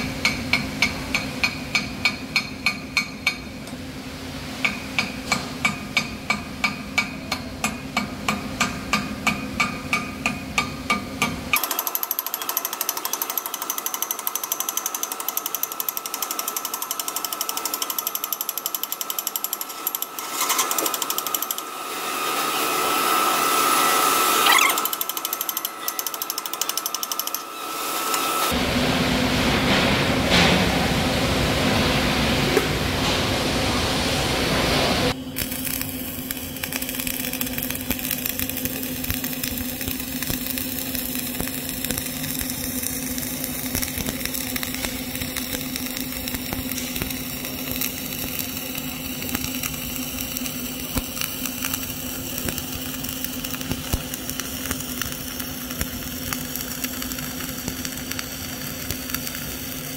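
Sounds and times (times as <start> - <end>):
hammer striking metal: 0.0 - 3.6, 4.6 - 21.7
hiss with high whine: 20.2 - 26.4, 33.4 - 59.9.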